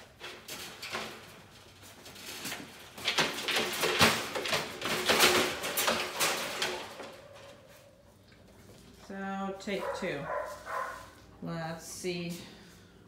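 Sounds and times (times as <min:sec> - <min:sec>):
wire dog crate rattling: 0:00.1 - 0:07.6.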